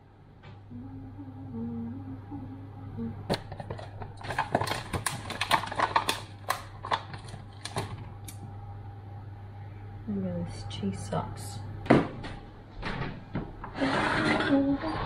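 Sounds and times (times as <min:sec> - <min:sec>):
plastic wrapper crinkling: 0:04.2 - 0:08.4.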